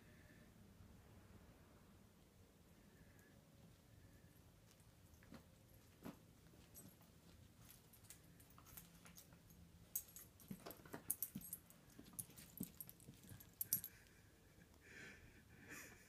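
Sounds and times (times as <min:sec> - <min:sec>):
light clicks and jingles: 0:04.6 - 0:14.3.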